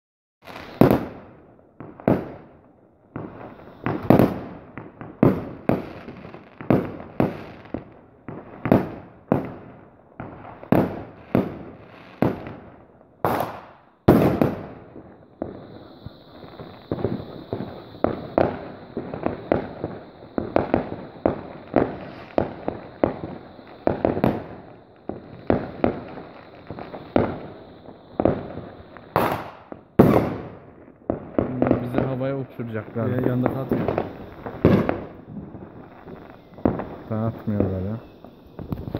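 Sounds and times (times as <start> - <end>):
fireworks bangs echoing: 0.4 - 38.9
steady high whistle: 15.3 - 29.2, 31.8 - 38.9.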